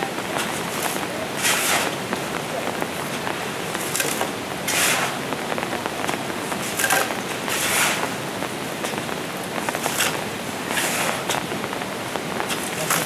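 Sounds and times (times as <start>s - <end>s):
steady hiss: 0.0s - 13.0s
shovels scraping mud and gravel: 0.4s - 2.0s, 3.8s - 5.2s, 6.6s - 8.1s, 9.8s - 11.4s, 12.5s - 13.0s.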